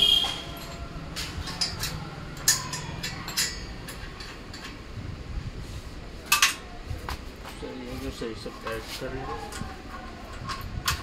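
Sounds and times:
metal clicks and clinks: 0.5 - 4.8.

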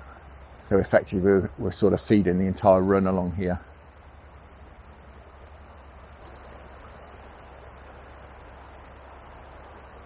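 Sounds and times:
river water rushing over gravel: 0.0 - 10.0
faint high bird chirp: 5.1 - 7.7, 8.4 - 10.0.

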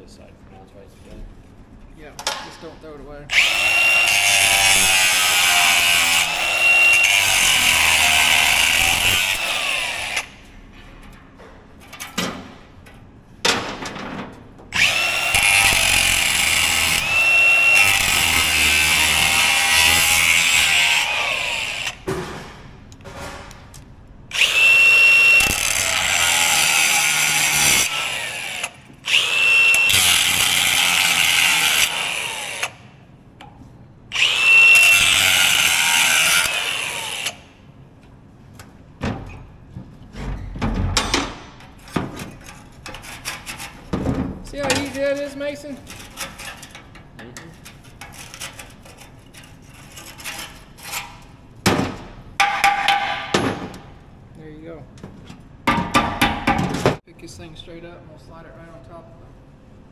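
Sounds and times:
angle grinder cutting steel pipe: 3.3 - 10.3, 14.8 - 22.0, 24.3 - 32.8, 34.1 - 37.4.

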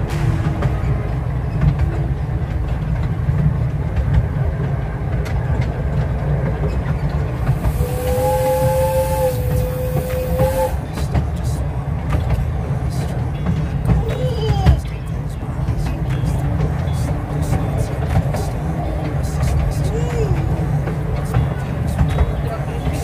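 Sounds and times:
train wheels rumbling on track: 0.0 - 23.0
steam hissing: 7.3 - 11.6
steam whistle two-note blast: 7.6 - 10.8.

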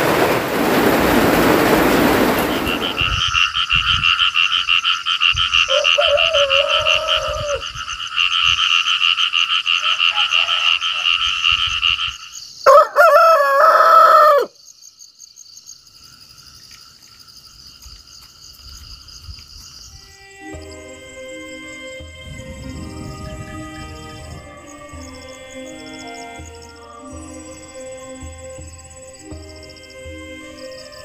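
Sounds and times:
frogs trilling: 2.5 - 31.0
rooster crowing: 5.7 - 7.7, 9.7 - 11.3, 12.7 - 14.6.

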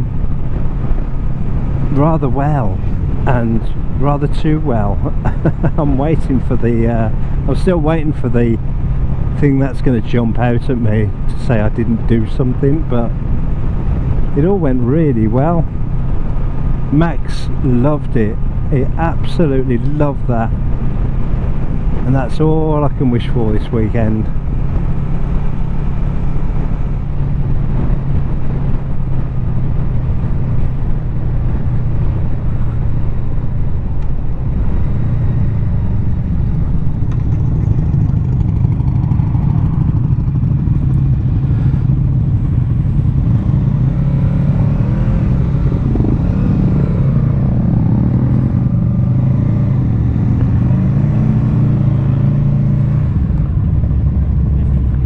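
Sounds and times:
motorcycle engine running: 17.7 - 55.0.

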